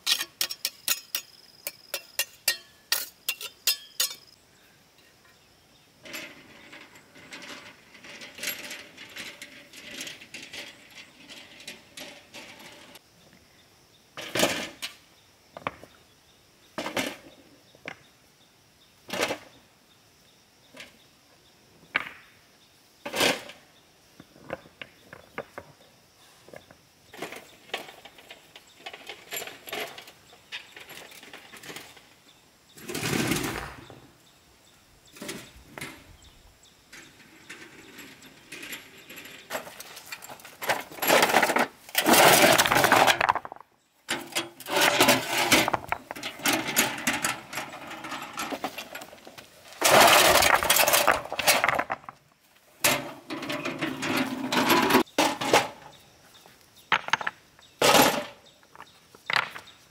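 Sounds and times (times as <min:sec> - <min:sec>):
stones clattering in wheelbarrow: 0:06.0 - 0:13.0, 0:14.2 - 0:15.0, 0:16.8 - 0:17.4, 0:23.0 - 0:23.6, 0:27.1 - 0:32.0, 0:37.0 - 0:56.0, 0:56.9 - 0:59.8
stones dumped onto ground: 0:39.5 - 0:52.2, 0:56.9 - 0:59.8.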